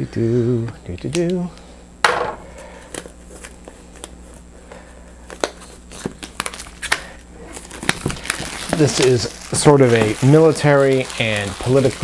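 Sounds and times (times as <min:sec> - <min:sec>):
electrical buzz: 0:01.6 - 0:04.8
loud knock: 0:02.0 - 0:02.5
plastic shrink wrap crinkling: 0:02.9 - 0:12.0.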